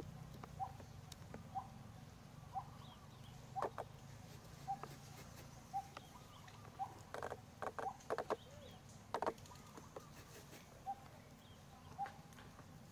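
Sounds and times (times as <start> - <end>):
dry fibres crackling and rustling: 3.6 - 12.9.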